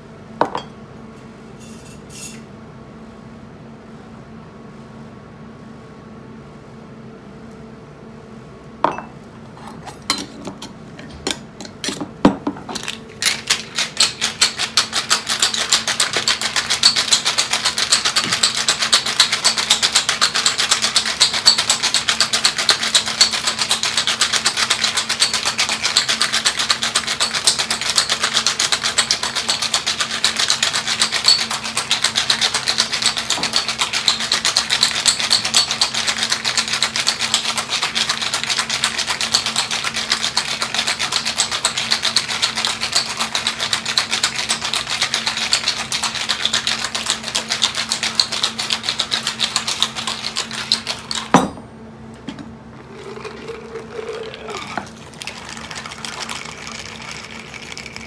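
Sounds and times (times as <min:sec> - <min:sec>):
ice rattling in cocktail shaker: 0:12.8 - 0:51.3, 0:52.8 - 0:58.0.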